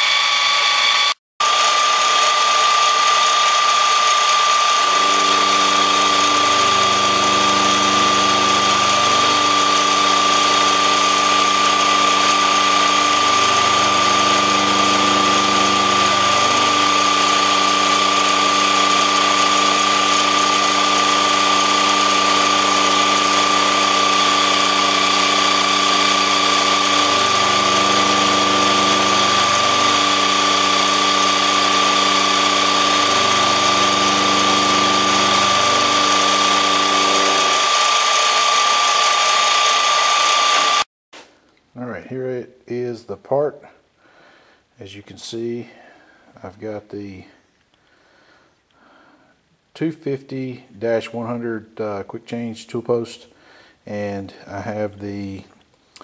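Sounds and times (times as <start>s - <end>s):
milling machine cutting steel: 0.0s - 40.9s.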